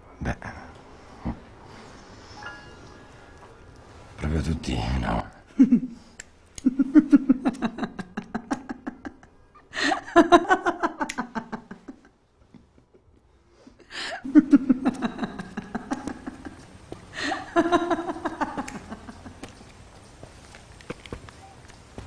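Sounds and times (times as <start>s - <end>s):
person laughing: 5.6s - 12.1s, 14.2s - 19.6s.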